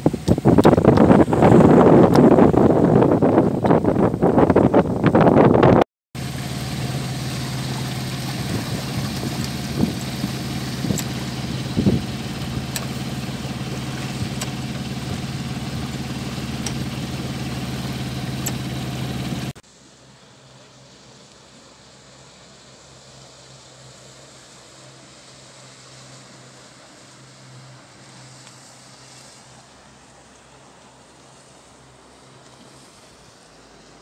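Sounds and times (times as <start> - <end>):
boat engine running: 0.0 - 19.6
faint hiss: 6.2 - 34.0
sharp clicks and knocks: 18.0 - 19.5.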